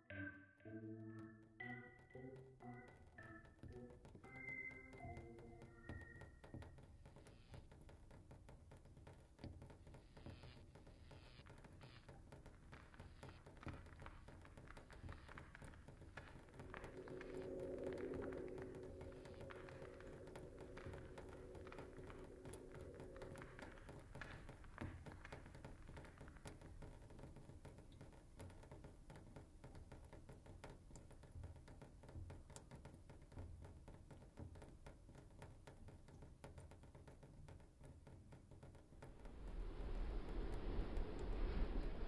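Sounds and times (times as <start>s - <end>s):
soft electronic clicks: 0.1s - 7.5s
low rumble: 16.3s - 24.1s, 38.9s - 42.0s.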